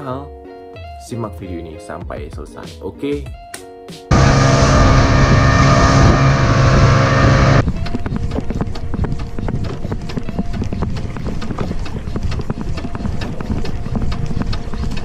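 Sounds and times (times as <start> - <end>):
boat engine drone: 4.1 - 9.9.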